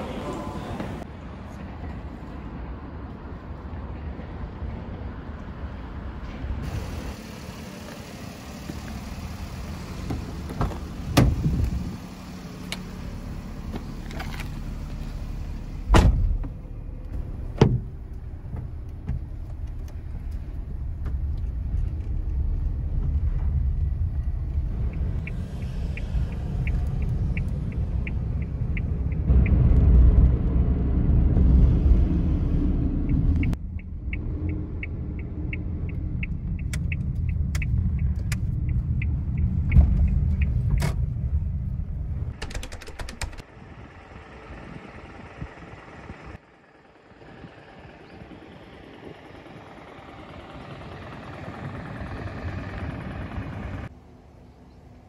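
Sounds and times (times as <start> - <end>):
car engine and tyres rumbling: 0.0 - 55.0
car door shutting: 8.6 - 11.9, 15.9 - 19.3
turn signal ticking: 17.8 - 29.6, 33.0 - 43.5
quick clicks: 42.3 - 43.4.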